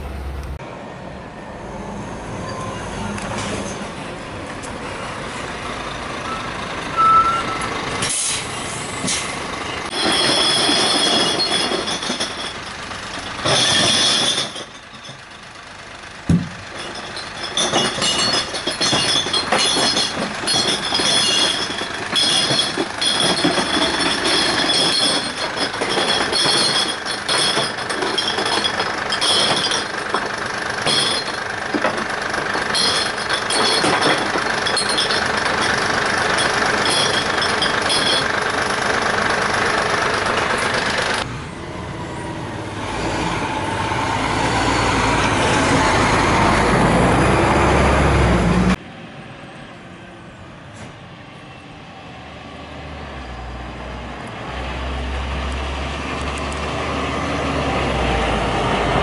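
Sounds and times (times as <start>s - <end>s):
diesel engine running: 0.0s - 0.6s, 4.6s - 48.8s
clanks and knocks: 9.9s - 15.3s, 16.3s - 38.4s.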